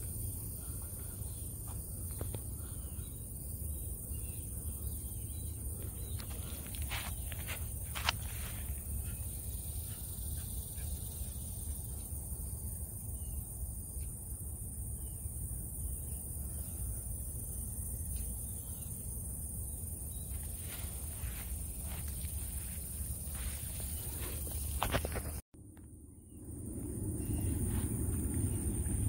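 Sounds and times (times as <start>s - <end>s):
high-pitched insect drone: 0.0s - 25.3s, 26.2s - 29.0s
footsteps in grass: 5.8s - 9.1s, 20.2s - 25.4s
low rumble: 25.6s - 29.0s.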